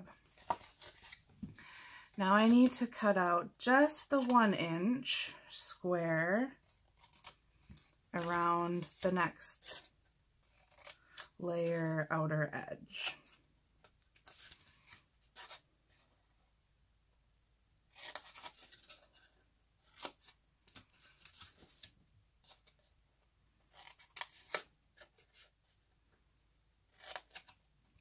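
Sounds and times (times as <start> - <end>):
scissors snipping cardstock: 26.9 - 27.6.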